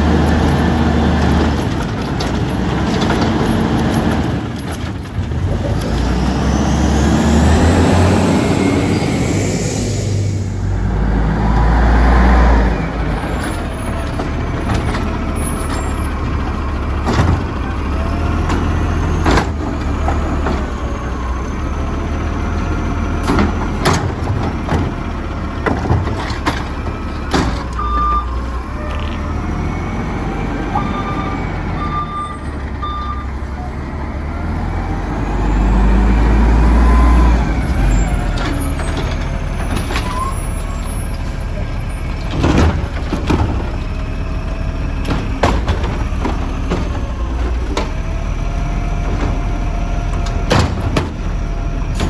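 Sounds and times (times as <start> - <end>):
garbage truck engine running: 0.0 - 52.0
metal clanks and knocks: 23.2 - 28.1, 42.2 - 44.0, 45.0 - 48.0, 50.1 - 51.3
short beeps: 27.8 - 29.2, 30.7 - 33.4.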